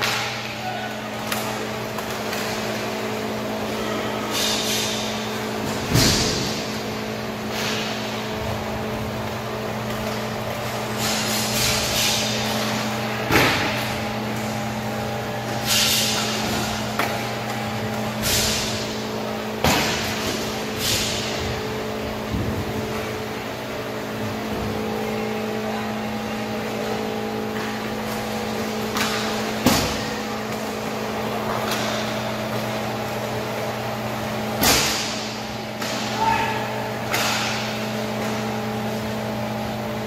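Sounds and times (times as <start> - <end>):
steady hum: 0.0 - 40.0
sticks and puck cracking on boards: 34.6 - 38.4.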